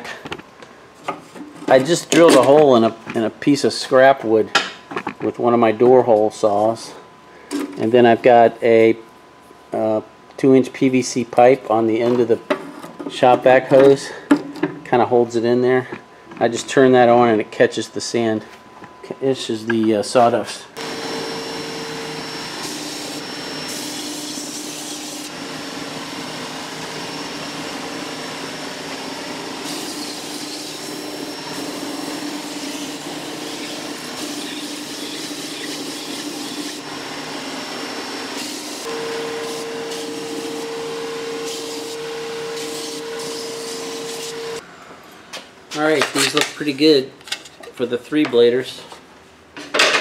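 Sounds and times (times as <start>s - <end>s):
shop vacuum running: 0.0s - 46.8s
belt sander running: 20.8s - 44.6s
wood sanding against belt: 29.6s - 36.8s, 38.4s - 44.6s.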